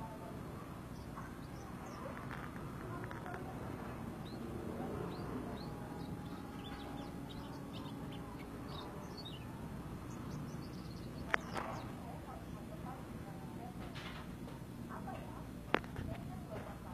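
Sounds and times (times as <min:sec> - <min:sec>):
birds chirping and trilling: 0:00.0 - 0:13.0.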